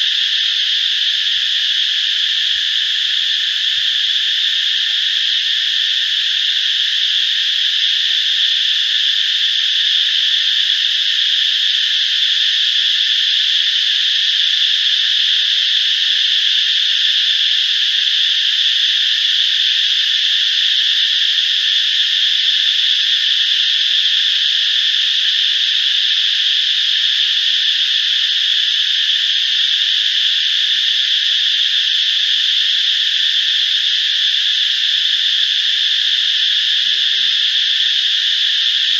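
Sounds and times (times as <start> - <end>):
insect chorus droning: 0.0 - 38.9.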